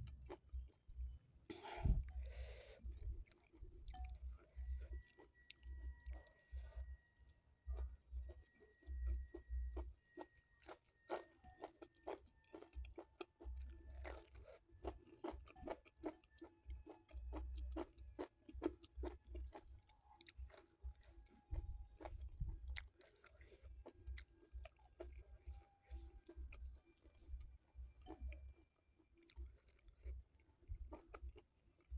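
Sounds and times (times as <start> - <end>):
close chewing with wet clicks: 0.0 - 7.0, 7.6 - 31.9.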